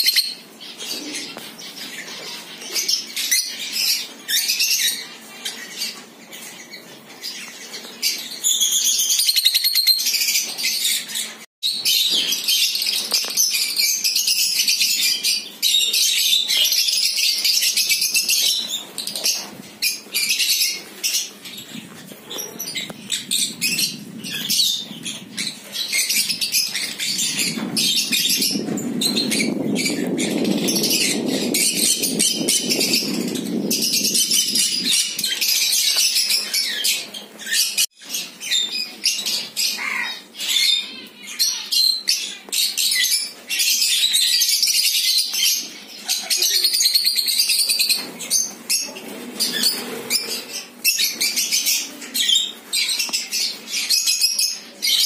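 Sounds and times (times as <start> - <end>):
lovebirds chirping shrilly: 0.0 - 55.0
wings flapping: 21.6 - 36.8, 47.8 - 51.4.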